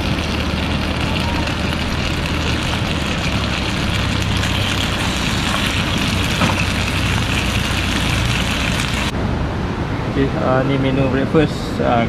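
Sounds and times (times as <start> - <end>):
food sizzling in skillet: 0.0 - 9.1.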